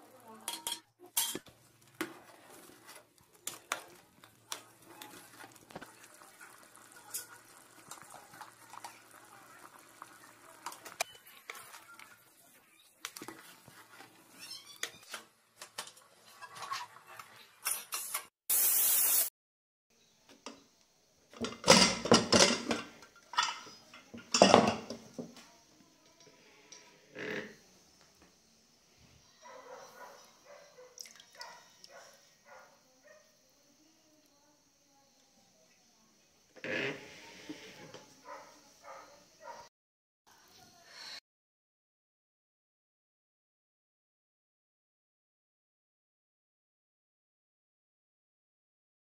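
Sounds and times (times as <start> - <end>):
loud hiss: 18.5 - 19.3.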